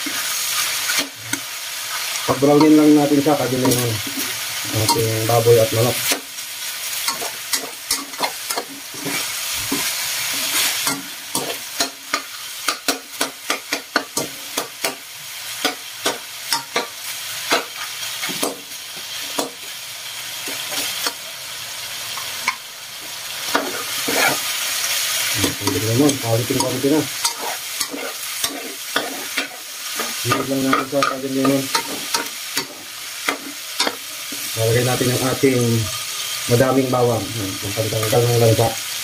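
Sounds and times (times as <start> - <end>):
meat sizzling in oil: 0.0 - 39.0
spatula scraping a pan: 7.0 - 15.0, 23.4 - 34.5.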